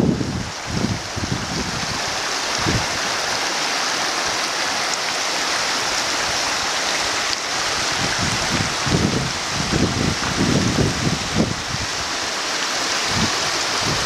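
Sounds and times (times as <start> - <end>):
wind buffeting microphone: 0.0 - 3.4, 7.0 - 12.2, 12.9 - 14.0
stream rushing over stones: 0.0 - 14.0.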